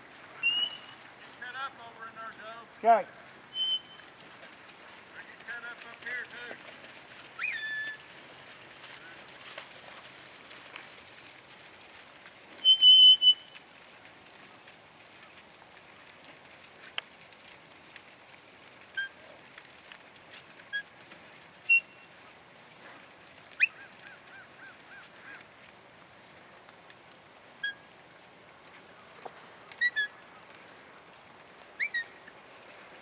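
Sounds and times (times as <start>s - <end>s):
high whistled calls: 0.4s - 1.0s, 3.5s - 4.1s, 7.4s - 8.0s, 12.6s - 13.5s, 21.7s - 22.0s, 31.8s - 32.1s.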